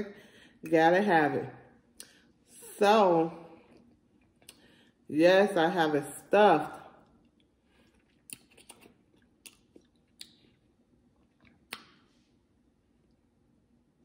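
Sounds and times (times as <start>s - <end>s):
soft eating clicks and smacks: 3.7s - 4.7s, 7.0s - 12.1s.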